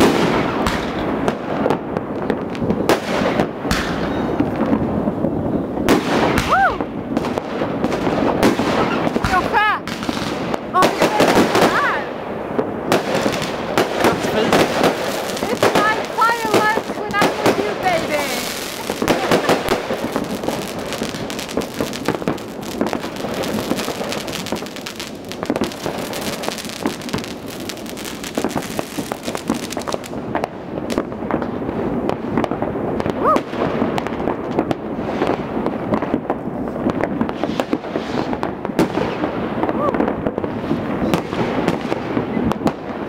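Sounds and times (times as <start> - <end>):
fireworks crackling and banging: 0.0 - 43.0
rising firework whistle: 5.9 - 6.9.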